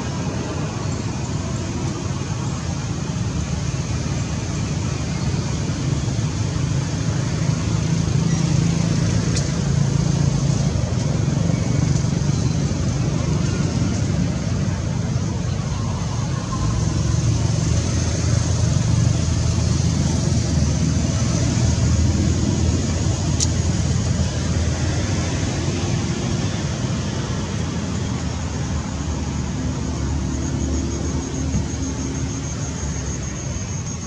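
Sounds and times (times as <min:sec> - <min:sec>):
outdoor background rumble: 0:00.0 - 0:34.0
steady high hiss: 0:00.0 - 0:34.0.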